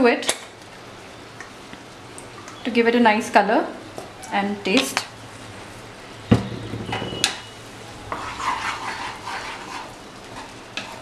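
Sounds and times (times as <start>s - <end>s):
light sizzle from pan: 0.0s - 6.3s, 7.2s - 11.0s
spatula scraping through sauce: 8.1s - 11.0s.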